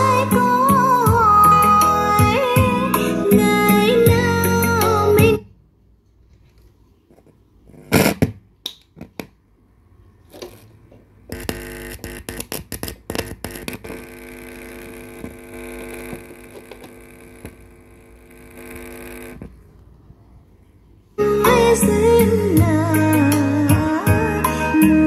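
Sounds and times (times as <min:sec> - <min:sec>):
speaker pops and crackles: 0:07.1 - 0:09.4, 0:11.3 - 0:19.6
steady electrical buzz: 0:10.3 - 0:19.7.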